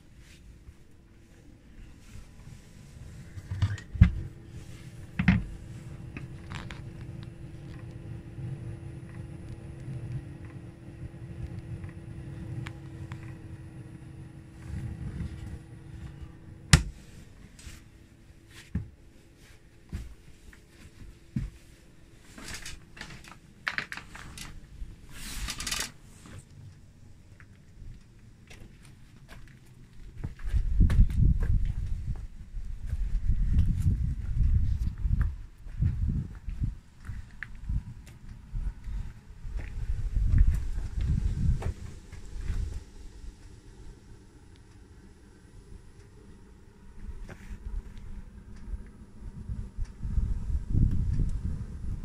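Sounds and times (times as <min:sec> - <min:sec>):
parking heater humming: 0:00.0 - 0:52.0
rustling handling noise: 0:17.0 - 0:26.6.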